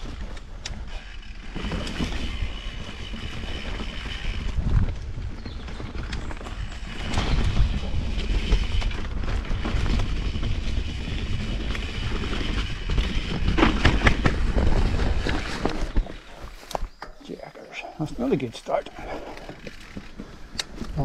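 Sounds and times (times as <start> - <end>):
bike chain rattling: 0.0 - 15.8, 18.7 - 20.5
tyres rumbling on dirt: 0.0 - 21.0
wind on microphone: 2.0 - 16.5.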